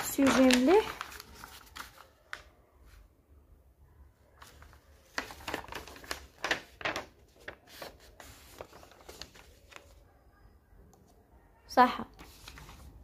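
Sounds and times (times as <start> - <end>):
paper rustling: 0.0 - 3.0, 4.4 - 10.0, 12.2 - 13.0.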